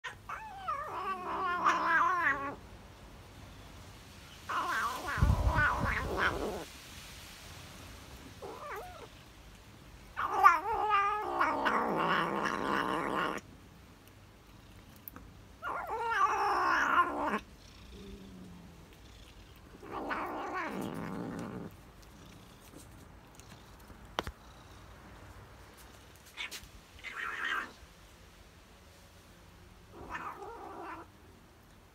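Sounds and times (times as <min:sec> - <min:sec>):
cat meowing: 0:00.0 - 0:02.6, 0:04.5 - 0:06.7, 0:10.2 - 0:13.4, 0:15.6 - 0:17.4, 0:19.7 - 0:21.7, 0:26.3 - 0:27.8, 0:29.9 - 0:31.1.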